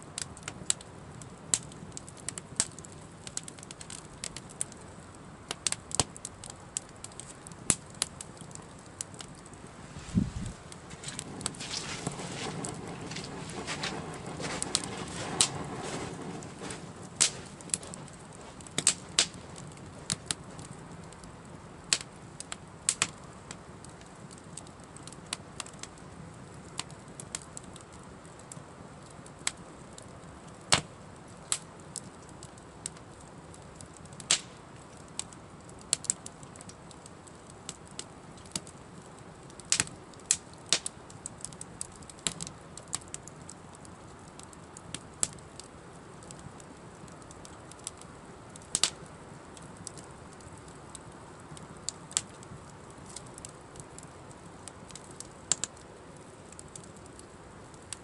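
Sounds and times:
campfire crackling: 0.0 - 58.0
hiss of flames: 5.2 - 28.0
sharp pops and snaps: 16.6 - 21.3, 21.9 - 23.6, 33.8 - 37.0, 39.5 - 43.5, 48.6 - 49.0, 49.6 - 55.9.

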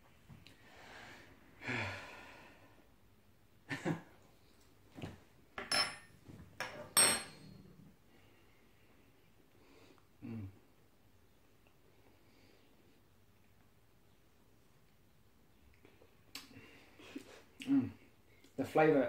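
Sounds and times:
people breathing out hard and sighing: 0.6 - 2.9.

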